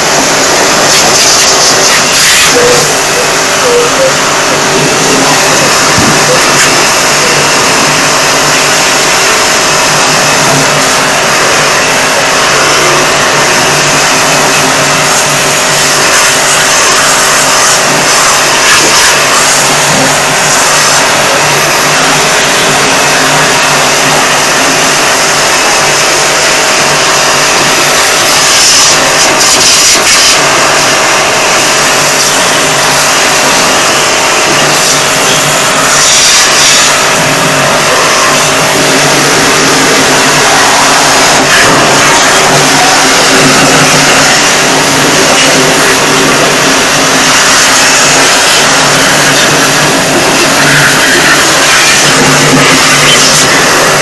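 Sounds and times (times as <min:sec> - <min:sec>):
pressure washer pump humming: 0:00.0 - 0:54.0
water jet hissing onto metal fins: 0:27.9 - 0:54.0.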